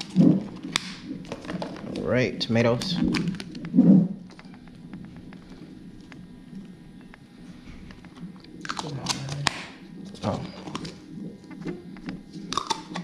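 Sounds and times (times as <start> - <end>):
chips and containers crunching: 12.5 - 13.0.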